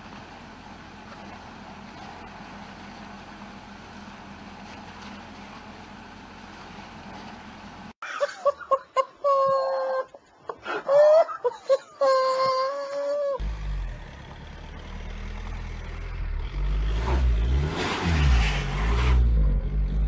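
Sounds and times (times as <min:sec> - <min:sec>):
suv engine humming: 0:00.0 - 0:08.0, 0:13.4 - 0:20.0
man wailing loudly: 0:09.0 - 0:13.4.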